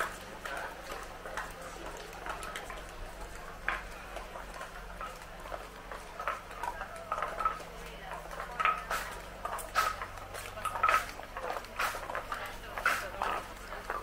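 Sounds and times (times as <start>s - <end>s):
faint voices: 0.0s - 14.0s
footsteps: 0.0s - 14.0s.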